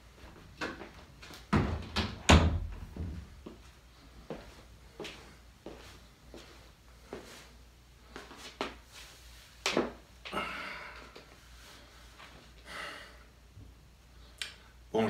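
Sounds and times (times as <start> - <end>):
light knocks and footsteps: 0.1 - 7.5.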